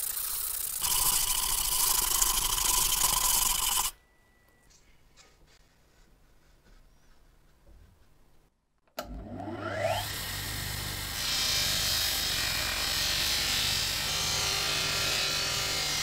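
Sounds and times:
bench grinder whine: 0:00.0 - 0:03.9, 0:09.0 - 0:16.0.

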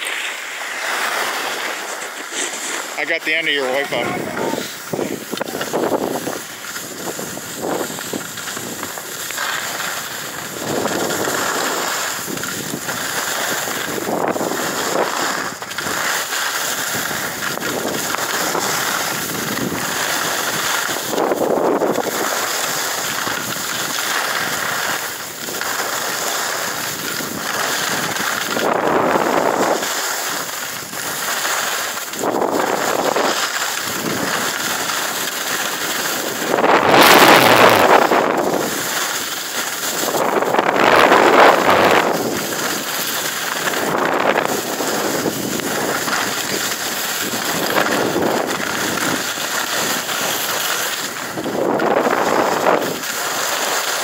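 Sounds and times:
skis scraping over snow: 0:00.0 - 0:54.0
wind buffeting phone microphone: 0:03.2 - 0:16.1, 0:16.8 - 0:24.6, 0:36.0 - 0:39.0, 0:39.8 - 0:53.1.

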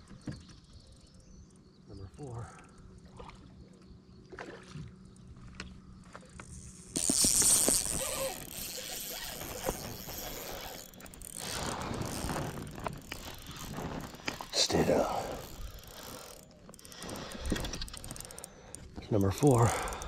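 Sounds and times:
fishing reel ticking: 0:06.4 - 0:20.0.

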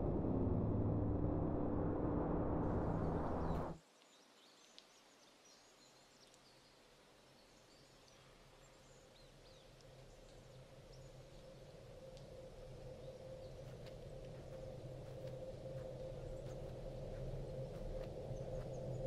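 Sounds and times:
loud low drone: 0:00.0 - 0:03.8
woodland ambience: 0:02.6 - 0:19.0
small birds chirping: 0:03.4 - 0:19.0.

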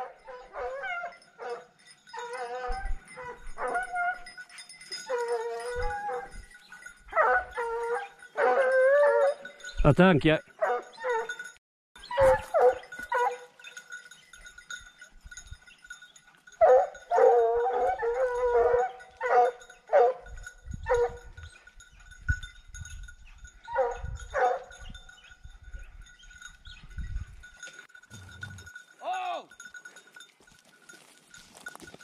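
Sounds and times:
hounds baying: 0:00.0 - 0:09.8, 0:10.5 - 0:22.6, 0:23.2 - 0:26.8.

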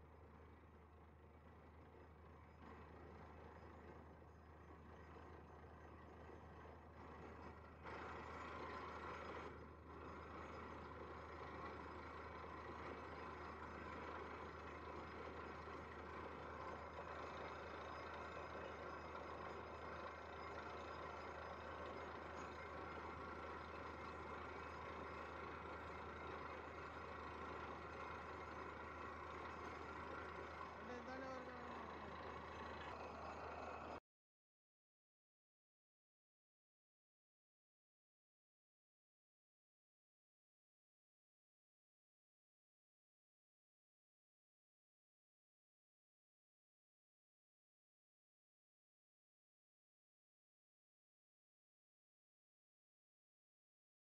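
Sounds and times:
drilling rig engine droning: 0:07.1 - 0:34.0.

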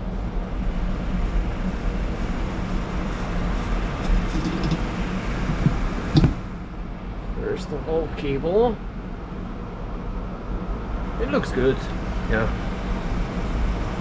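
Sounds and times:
machinery humming and rushing: 0:00.0 - 0:14.0
short knock: 0:05.5 - 0:06.4.

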